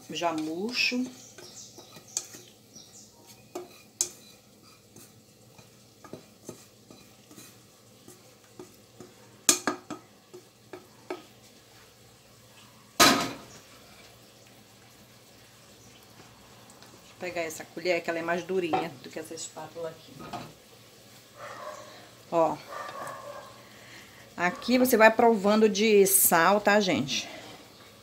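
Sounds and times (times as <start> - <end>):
spatula scraping a frying pan: 0.0 - 12.0, 13.4 - 14.3.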